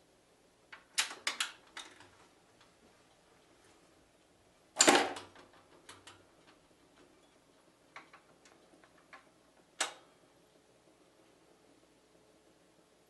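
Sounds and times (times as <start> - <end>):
record changer mechanism clicking: 7.9 - 10.1.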